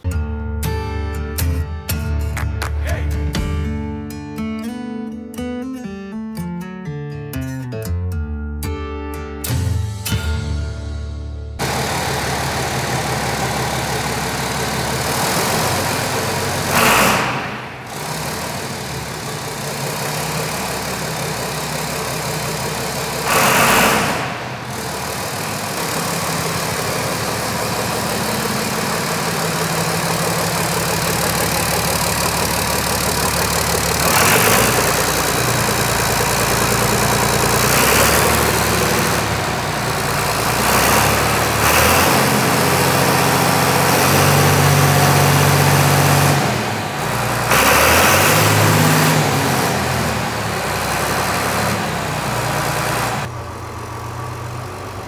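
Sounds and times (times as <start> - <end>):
diesel tractor idling: 11.6 - 55.0
short louder engine bursts: 11.6 - 55.0.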